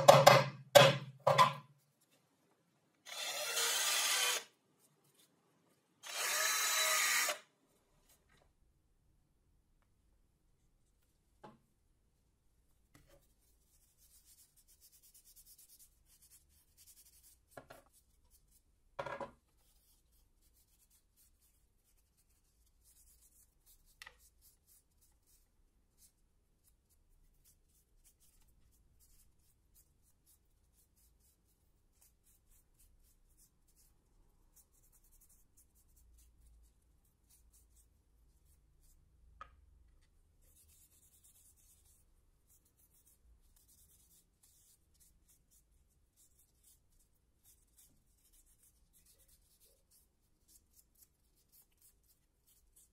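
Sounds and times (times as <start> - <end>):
wooden blocks knocking on table: 0.0 - 1.6, 19.0 - 19.4.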